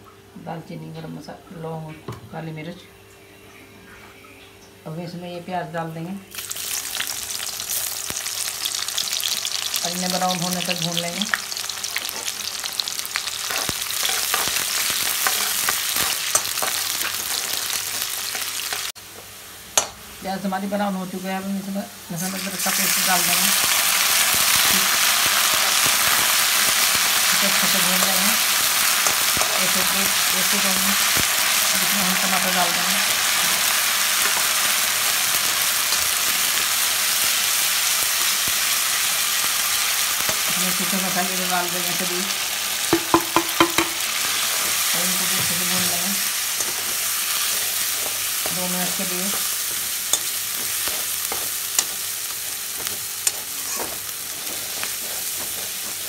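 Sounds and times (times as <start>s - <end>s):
onions sizzling in hot oil: 6.3s - 56.0s
metal spatula scraping: 13.5s - 18.9s, 46.6s - 56.0s
metal spoon clicking on pan: 19.8s - 20.0s.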